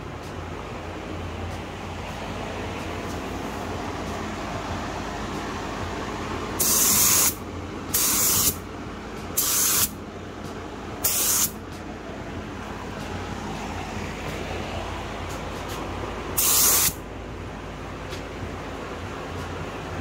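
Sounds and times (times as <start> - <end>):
booth fan noise: 0.0 - 20.0
spray gun hissing: 6.6 - 8.6, 9.4 - 10.0, 11.0 - 11.6, 16.4 - 17.0.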